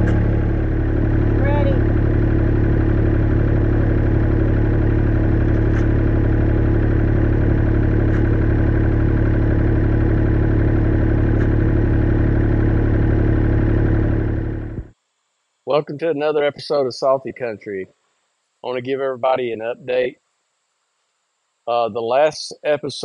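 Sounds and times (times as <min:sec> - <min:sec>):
diesel engine running: 0:00.0 - 0:14.9.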